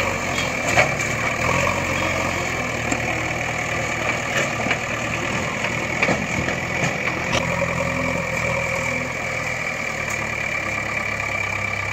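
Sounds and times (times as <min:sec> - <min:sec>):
engine idling: 0:00.0 - 0:11.9.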